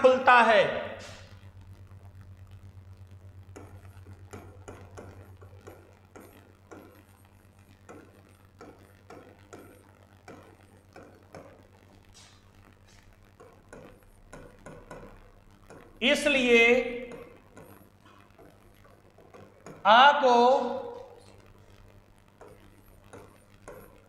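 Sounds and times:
low electrical hum: 0:00.0 - 0:24.0
chalk tapping on blackboard: 0:12.2 - 0:15.9, 0:22.4 - 0:24.0.

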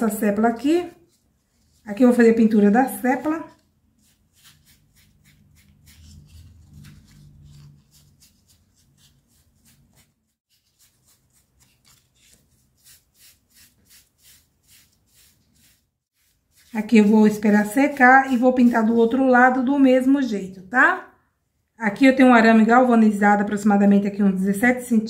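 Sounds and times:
paintbrush brushing on foam: 0:00.5 - 0:19.5.

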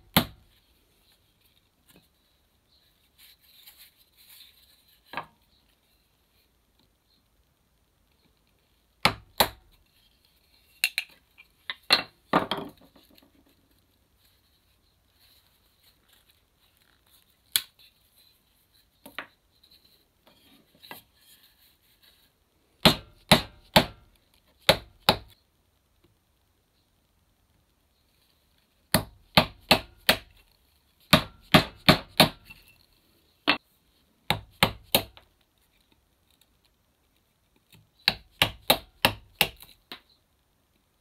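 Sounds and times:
mallet striking chisel into wood: 0:09.0 - 0:09.6, 0:22.8 - 0:24.0, 0:29.0 - 0:30.3, 0:31.2 - 0:32.5, 0:38.1 - 0:39.6.

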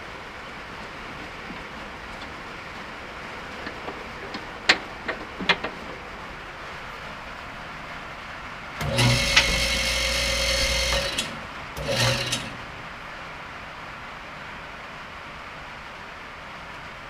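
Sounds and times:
hydraulic pump motor humming: 0:08.8 - 0:12.9.

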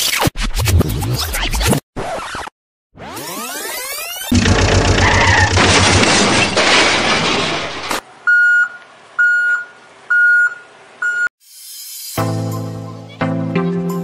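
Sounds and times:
loud crashing clatter: 0:04.3 - 0:08.0
music: 0:12.2 - 0:14.0.

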